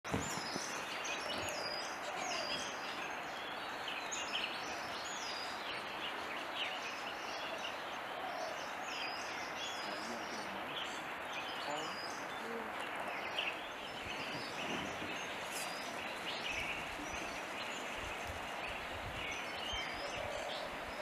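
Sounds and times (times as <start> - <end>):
small birds chirping: 0.1 - 21.0.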